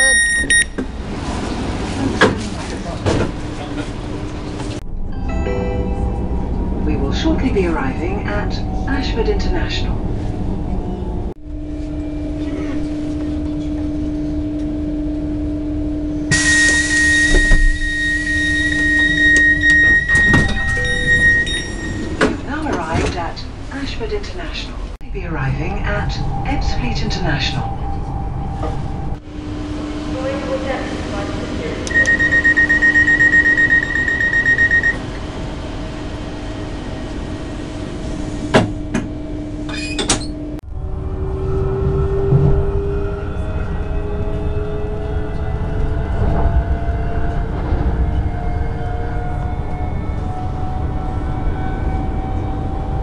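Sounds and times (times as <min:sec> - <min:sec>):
rapid warning beeps: 0:00.0 - 0:00.7, 0:31.9 - 0:35.0
train electrical hum: 0:00.0 - 0:53.0
pulsing high-pitched door tone: 0:16.3 - 0:22.4, 0:31.9 - 0:35.6.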